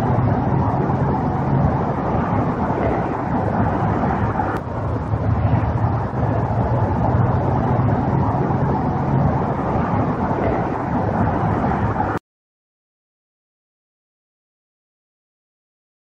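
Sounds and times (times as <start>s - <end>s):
rumble and hiss with low hum: 0.0s - 12.2s.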